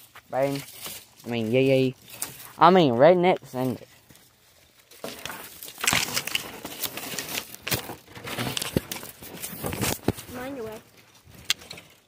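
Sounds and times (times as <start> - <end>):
dry sticks crackling and snapping: 0.1 - 2.6, 3.2 - 10.3.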